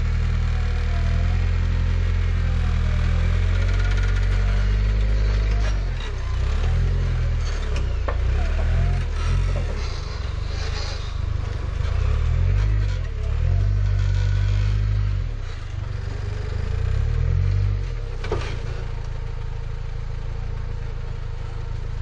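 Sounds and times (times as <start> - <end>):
engine revving under load: 0.0 - 20.2.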